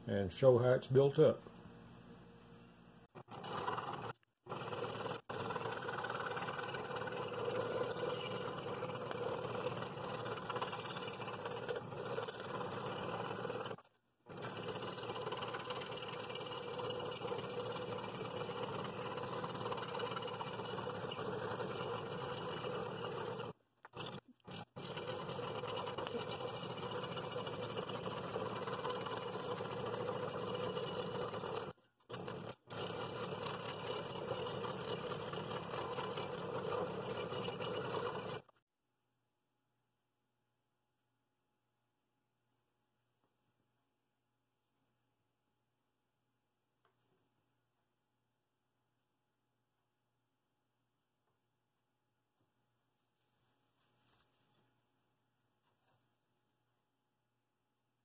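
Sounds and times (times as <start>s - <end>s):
scroll saw cutting wood: 3.1s - 38.5s.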